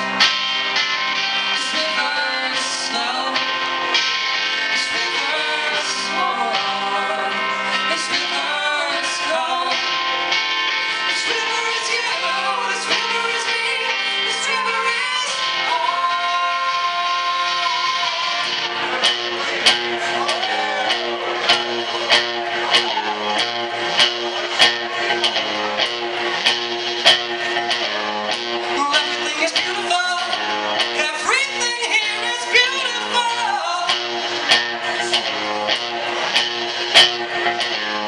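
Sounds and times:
live rock band playing: 0.0 - 38.0
person singing: 1.1 - 23.9, 28.6 - 35.8.

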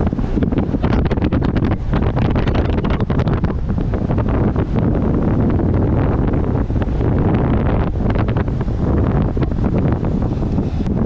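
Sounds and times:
wind buffeting camera microphone: 0.0 - 11.0.

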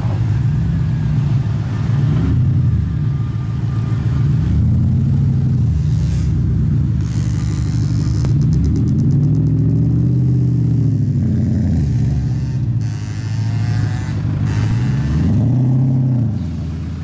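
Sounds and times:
car engine revving: 4.2 - 17.0.

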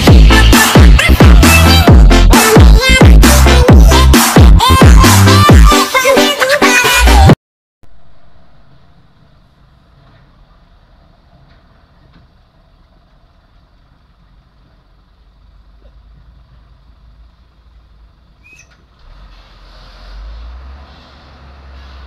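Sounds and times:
diesel truck engine rumbling: 0.0 - 5.5, 7.9 - 22.0
high squeak: 18.4 - 20.3.

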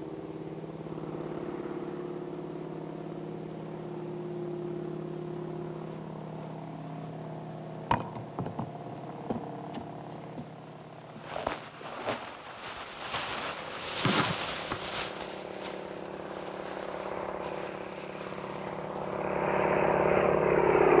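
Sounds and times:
floatplane engine droning: 0.0 - 21.0
sharp knocks: 7.9 - 8.7.

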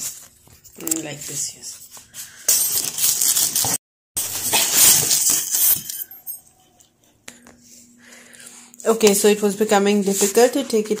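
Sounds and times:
plastic wrap crinkling: 0.0 - 6.1.

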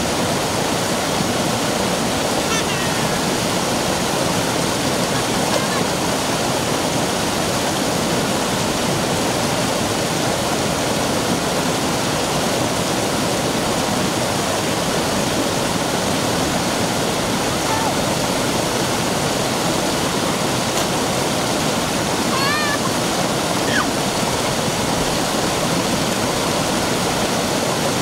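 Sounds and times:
stream rushing over rock: 0.0 - 28.0.

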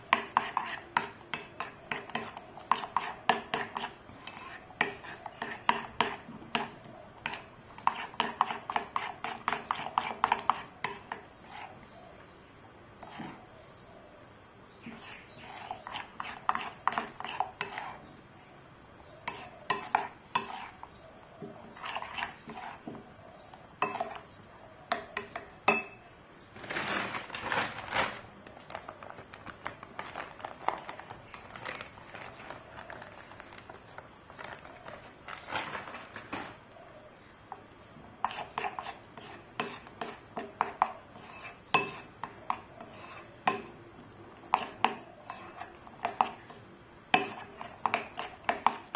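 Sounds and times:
metal spoon stirring batter in bowl: 0.0 - 12.0, 13.0 - 13.5, 14.8 - 18.2, 19.2 - 24.3, 37.5 - 48.9
sharp ringing clink: 25.7 - 26.1
flour pouring from plastic bag: 26.6 - 28.3.

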